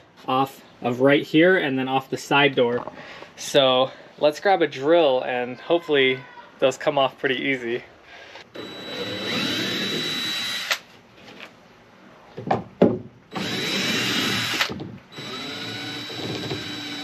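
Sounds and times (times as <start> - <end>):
power drill motor whining: 8.5 - 10.8, 13.3 - 17.0.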